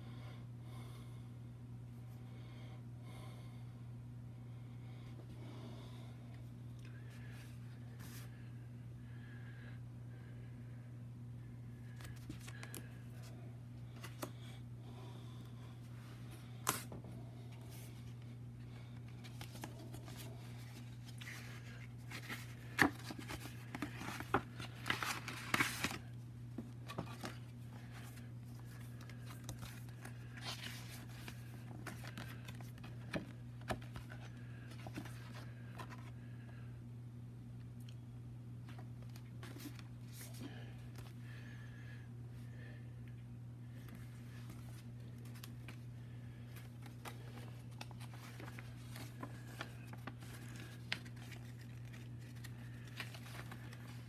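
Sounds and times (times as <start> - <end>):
steady low hum: 0.0 - 54.0
paper cards rustling and flipping: 11.9 - 14.5, 16.6 - 36.2, 38.7 - 41.2, 43.8 - 54.0.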